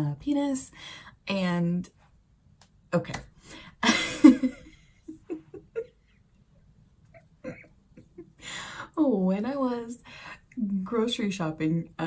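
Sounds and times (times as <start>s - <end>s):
woman giggling: 3.8s - 6.2s, 7.1s - 8.4s.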